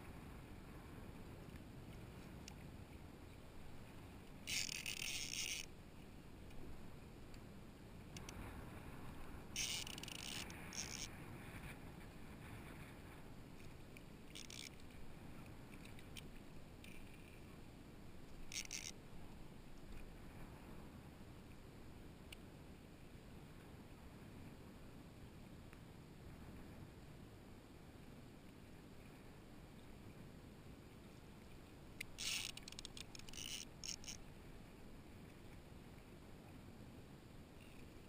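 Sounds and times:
water and wind rumble: 0.0 - 38.0
fishing reel whirring: 4.4 - 5.7, 9.6 - 11.1, 14.3 - 14.8, 18.5 - 19.0, 32.0 - 34.2.

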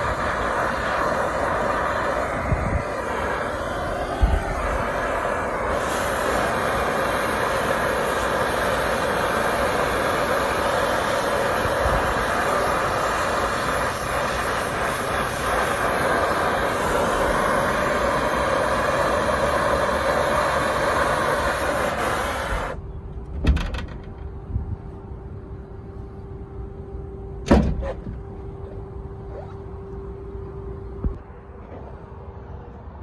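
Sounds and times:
torch flame hissing: 0.0 - 22.8.

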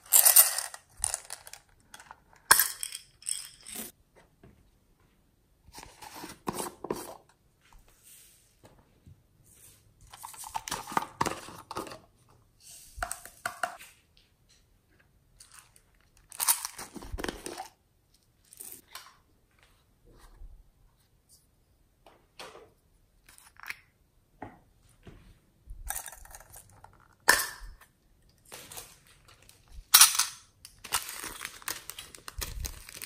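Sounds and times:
plastic capsules clicking: 0.0 - 3.8
beads rattling: 0.0 - 3.9
plastic crinkling: 30.8 - 33.0.

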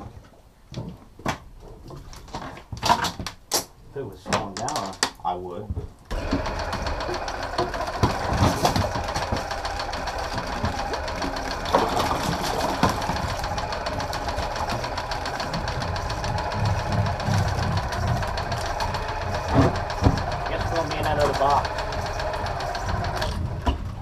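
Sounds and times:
loud clunks: 6.1 - 24.0
machinery knocking rhythmically: 6.1 - 24.0.

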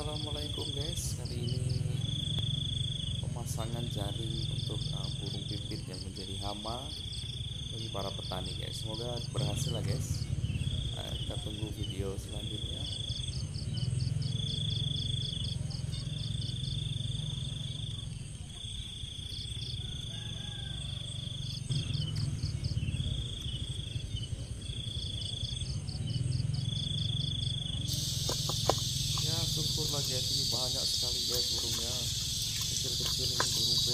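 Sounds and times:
hissing insect chorus: 0.0 - 33.9
insect high trill: 0.0 - 33.9
insect rapid pulsing chirp: 0.0 - 33.9
low rumble: 21.6 - 33.9.

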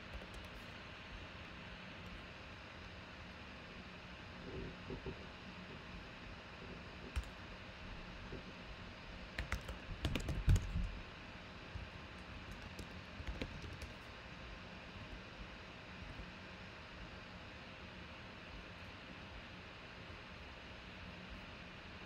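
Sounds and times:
keyboard typing: 0.0 - 0.7, 7.1 - 7.4, 9.3 - 11.0, 12.1 - 14.1.

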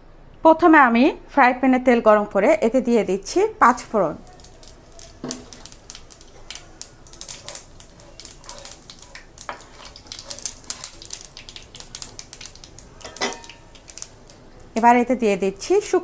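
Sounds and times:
seeds crackling in hot oil: 2.8 - 16.0.

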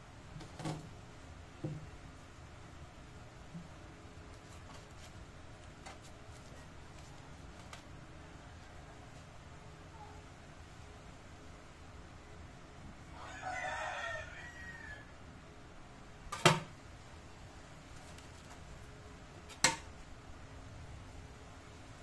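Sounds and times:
rooster crowing: 13.1 - 15.2.

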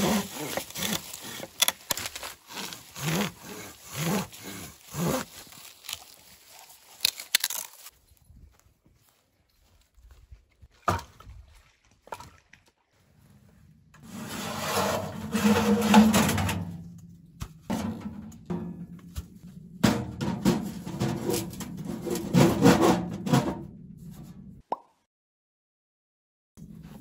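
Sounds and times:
metal-on-metal scraping: 14.0 - 24.6.

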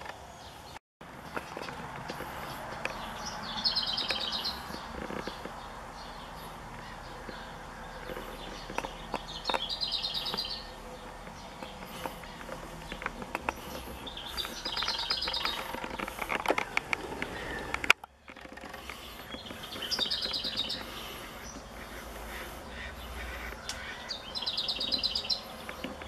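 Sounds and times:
songbird singing rapid high notes: 3.0 - 5.0, 8.4 - 13.0, 19.3 - 25.8.

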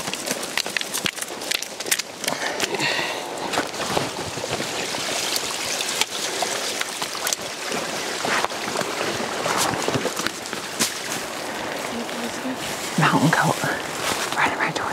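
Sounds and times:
twigs snapping: 0.0 - 7.5
footsteps on loose gravel: 0.0 - 14.4
rustling through branches: 0.0 - 14.9.

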